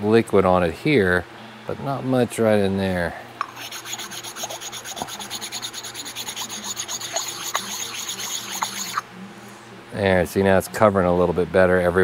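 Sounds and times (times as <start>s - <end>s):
abrasive block scraping on metal: 3.4s - 9.0s.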